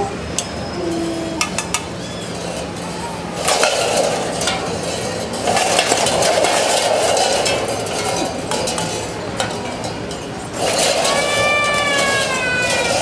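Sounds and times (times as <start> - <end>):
metal cans clinking and clanking: 3.4 - 13.0.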